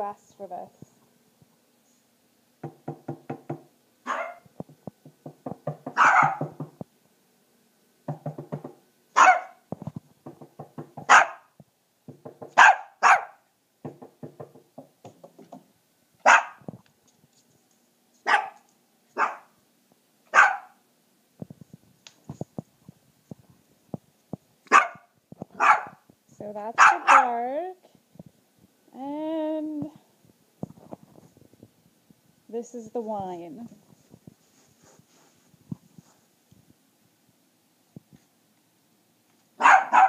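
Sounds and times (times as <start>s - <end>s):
puppy barking: 4.0s - 4.5s, 6.0s - 6.6s, 9.2s - 9.6s, 11.1s - 11.5s, 12.6s - 13.4s, 16.2s - 16.6s, 18.2s - 19.6s, 20.3s - 20.8s, 24.7s - 26.0s, 26.8s - 27.4s, 39.6s - 40.0s.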